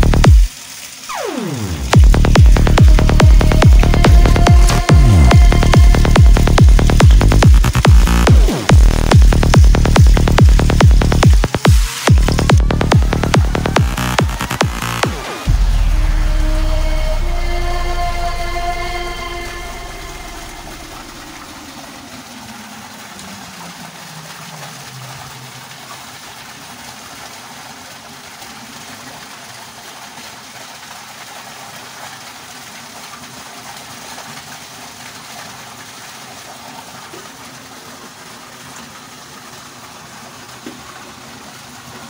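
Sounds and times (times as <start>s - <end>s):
water rushing: 0.0s - 42.0s
music with low sliding tone: 1.2s - 21.4s.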